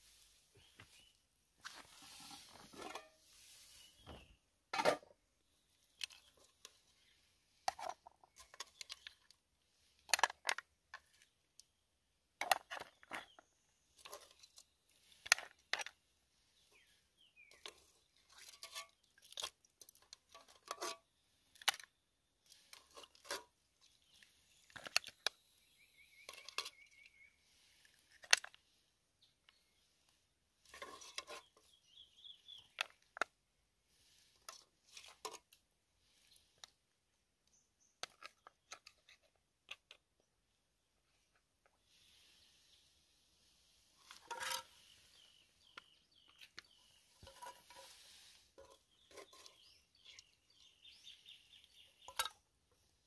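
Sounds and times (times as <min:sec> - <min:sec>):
metal spoon scraping a pot: 0:02.1 - 0:03.2, 0:17.5 - 0:25.2, 0:26.2 - 0:27.0, 0:30.6 - 0:31.7, 0:44.0 - 0:45.0, 0:47.0 - 0:50.4.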